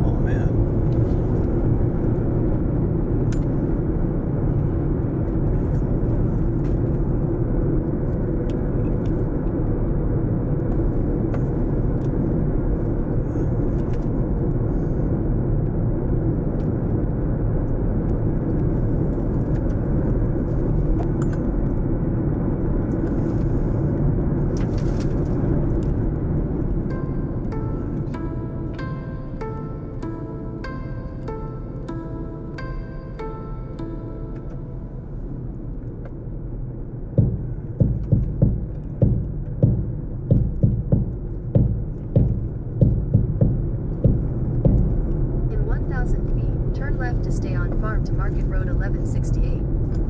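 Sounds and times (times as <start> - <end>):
tornado wind roaring: 0.0 - 28.6.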